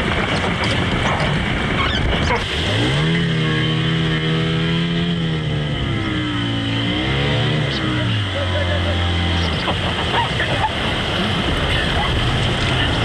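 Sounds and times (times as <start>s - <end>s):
outboard motor running: 0.0s - 13.0s
surf: 0.0s - 13.0s
wind: 0.0s - 13.0s.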